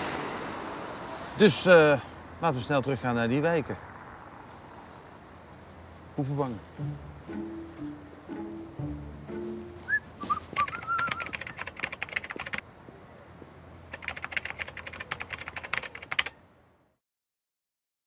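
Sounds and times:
faint outdoor background: 0:00.0 - 0:17.0
bird chirps: 0:06.8 - 0:12.0
keyboard typing clicks: 0:10.6 - 0:12.6, 0:13.9 - 0:16.4.

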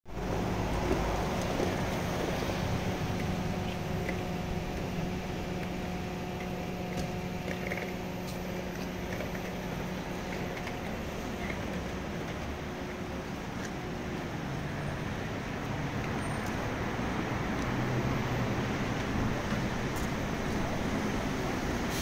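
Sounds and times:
ship engine and ventilation hum: 0:00.1 - 0:15.8.

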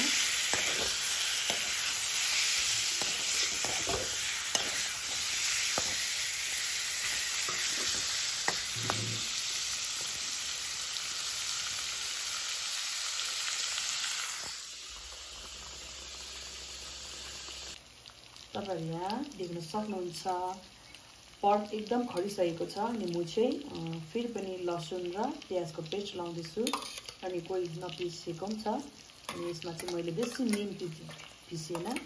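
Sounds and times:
metal spatula scraping a pan: 0:00.0 - 0:10.2, 0:26.6 - 0:27.2
meat sizzling in a wok: 0:00.0 - 0:32.0.

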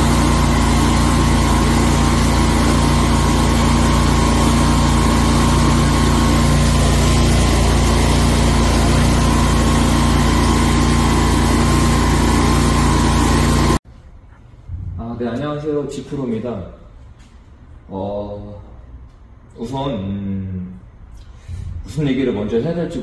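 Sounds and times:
gasoline engine running: 0:00.0 - 0:13.8.

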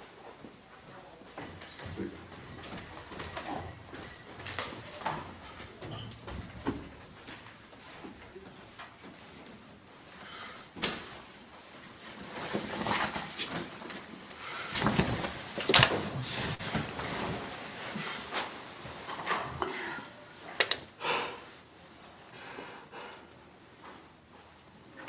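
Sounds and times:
bedding rustling: 0:01.6 - 0:19.6.

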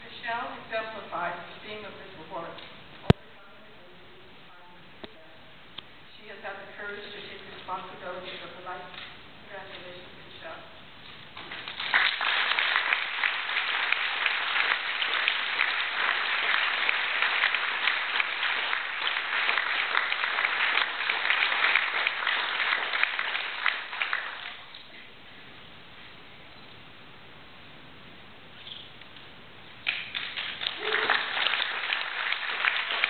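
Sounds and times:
audience applauding: 0:11.4 - 0:24.7, 0:29.8 - 0:33.0.

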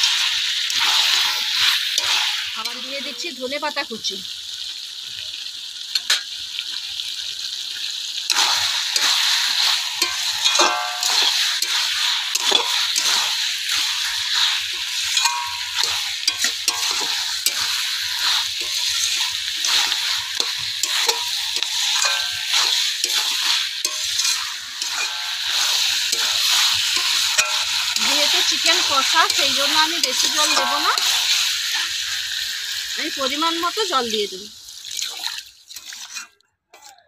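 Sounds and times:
metal spatula scraping pan: 0:00.0 - 0:02.8, 0:08.3 - 0:32.1, 0:35.8 - 0:37.0
chicken and potatoes sizzling: 0:00.0 - 0:37.0.

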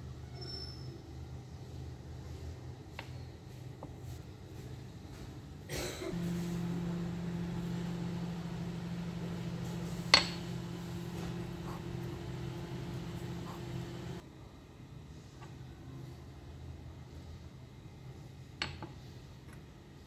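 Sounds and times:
steady low hum: 0:05.9 - 0:14.2.

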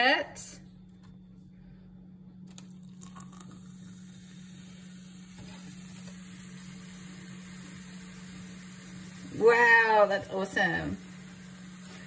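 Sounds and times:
steady low hum: 0:00.0 - 0:12.0
mixture fizzing with hiss: 0:02.5 - 0:12.0.

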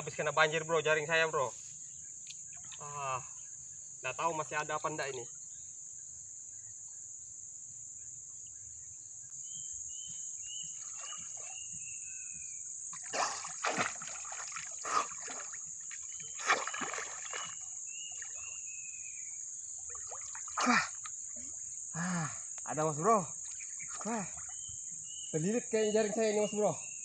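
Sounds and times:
high insect buzz: 0:00.0 - 0:27.0
bird chirping: 0:07.9 - 0:22.0, 0:22.6 - 0:27.0
water splashing: 0:10.7 - 0:11.8, 0:12.9 - 0:18.6, 0:19.7 - 0:21.7, 0:23.4 - 0:24.7.

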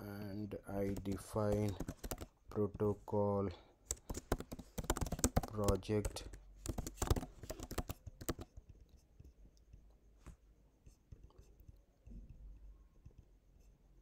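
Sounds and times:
keyboard typing clicks: 0:00.8 - 0:02.3, 0:03.9 - 0:08.5.

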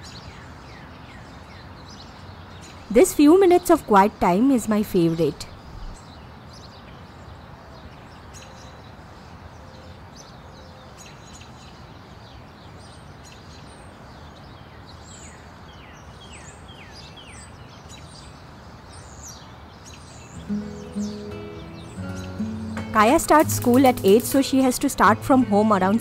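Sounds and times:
birds chirping: 0:19.0 - 0:26.0.

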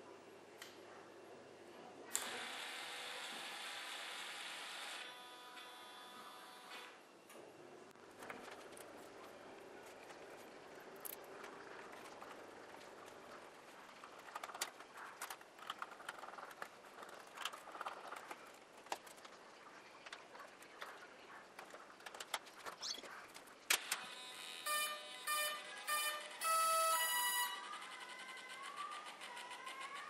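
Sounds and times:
wavering electronic tone: 0:24.6 - 0:30.0.

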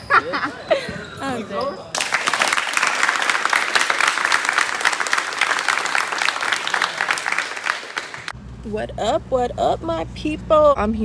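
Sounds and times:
group applauding: 0:01.9 - 0:08.3.

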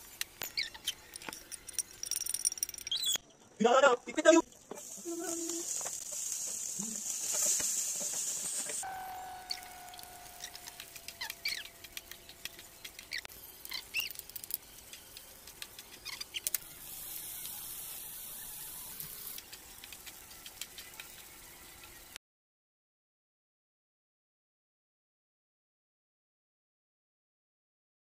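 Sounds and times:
high sizzling hiss: 0:04.5 - 0:22.2.

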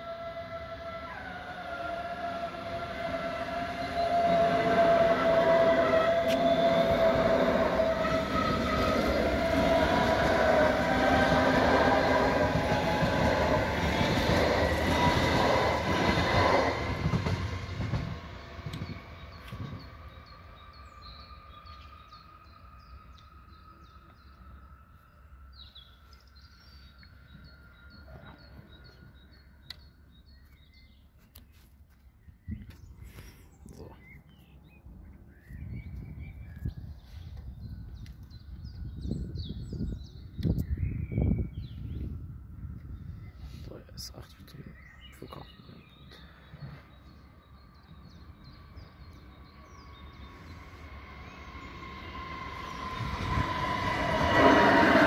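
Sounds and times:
electric train motor whine: 0:00.0 - 0:19.9, 0:47.9 - 0:55.0
wheels rumbling on rail: 0:00.0 - 0:30.4, 0:45.6 - 0:55.0.

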